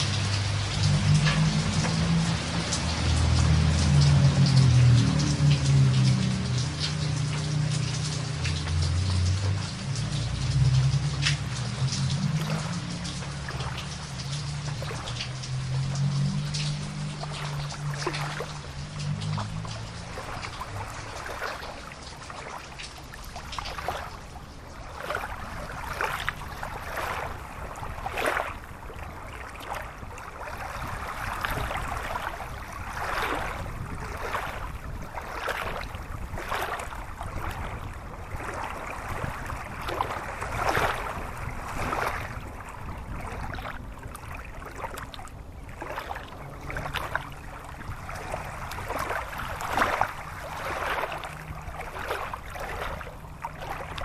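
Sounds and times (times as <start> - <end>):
stream rushing over stones: 0.0 - 54.0.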